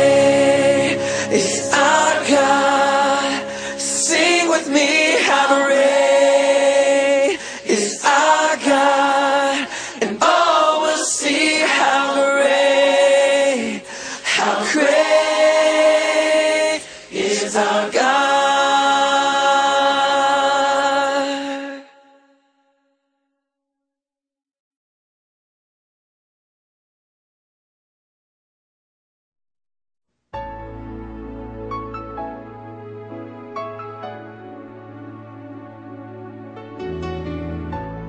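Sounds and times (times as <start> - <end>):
choir singing: 0.0 - 21.8.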